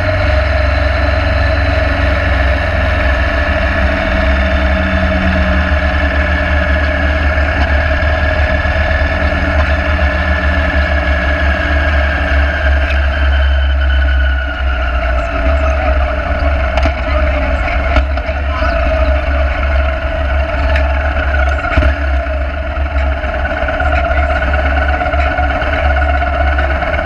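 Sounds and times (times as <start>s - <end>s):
motorcycle engine running: 0.0s - 27.0s.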